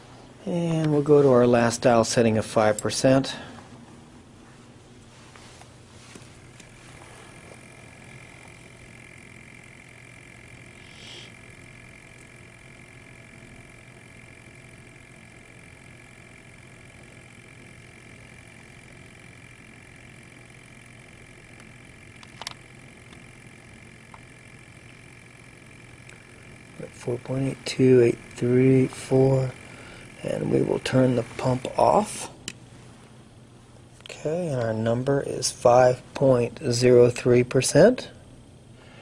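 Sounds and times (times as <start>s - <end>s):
small pump motor whining: 6.1s - 32.6s
sharp click: 21.6s - 23.2s.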